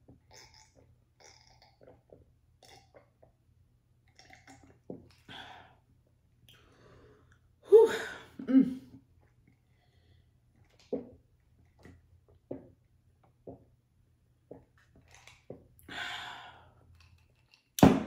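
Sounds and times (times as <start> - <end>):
woman sipping and swallowing: 0.1 - 3.4, 4.1 - 5.7.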